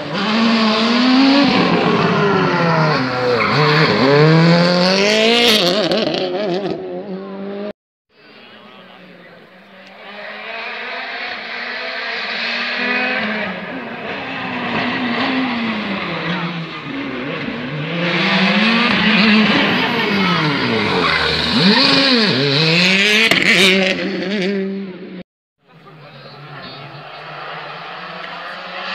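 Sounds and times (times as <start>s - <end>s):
rally car engine revving: 0.0s - 7.7s, 9.3s - 25.2s, 25.8s - 28.9s.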